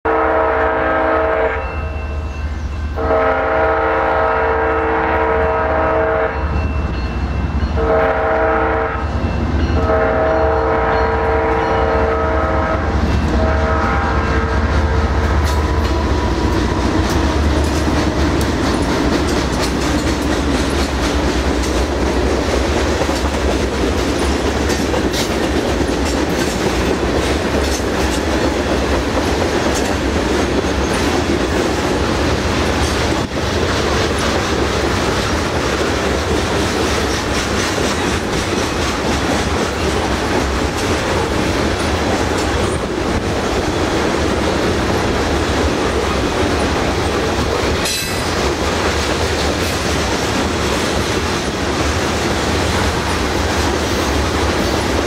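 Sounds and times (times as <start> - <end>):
train horn blasts: 0.0 - 6.6, 7.8 - 16.3
locomotives passing: 7.1 - 55.0
train wheels clicking over rail joints: 12.9 - 55.0.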